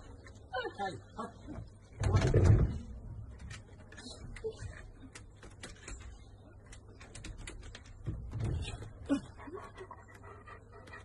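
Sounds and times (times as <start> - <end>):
dog clicking in wire pen: 3.4 - 8.4.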